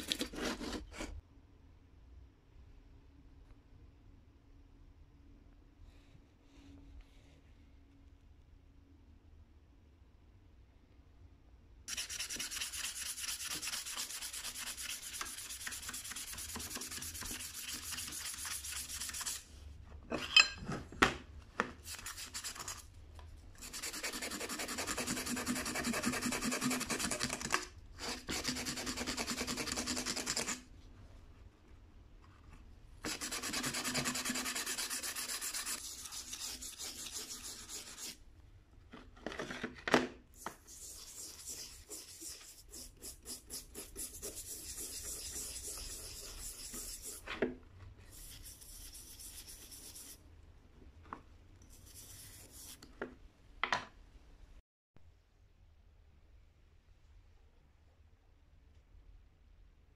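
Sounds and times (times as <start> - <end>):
brush scrubbing metal: 33.0 - 38.2, 40.6 - 47.3.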